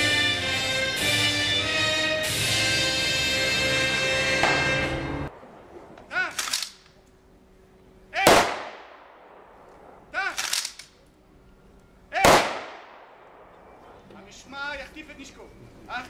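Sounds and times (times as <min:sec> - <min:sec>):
rifle volley with echo: 0:04.4 - 0:06.5, 0:08.2 - 0:10.6, 0:12.2 - 0:14.0
shouted command: 0:06.1 - 0:06.5, 0:08.1 - 0:08.5, 0:10.1 - 0:10.5, 0:12.1 - 0:12.4.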